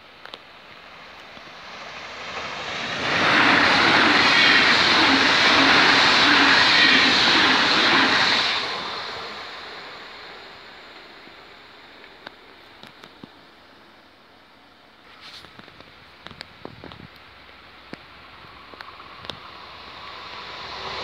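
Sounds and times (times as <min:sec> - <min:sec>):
train passing at speed: 0:00.0 - 0:13.0, 0:17.2 - 0:21.0.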